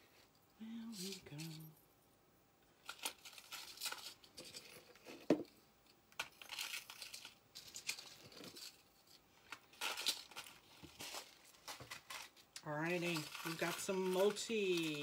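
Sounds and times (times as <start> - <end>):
plastic packaging crinkling: 2.8 - 5.2, 6.2 - 15.0.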